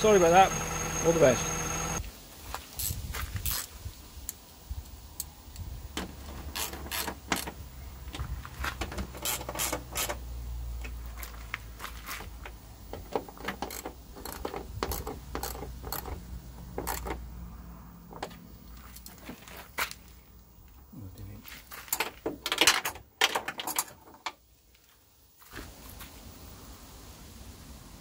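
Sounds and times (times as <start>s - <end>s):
ratchet wrench clicking: 6.5s - 7.5s, 9.2s - 10.2s, 13.0s - 17.2s.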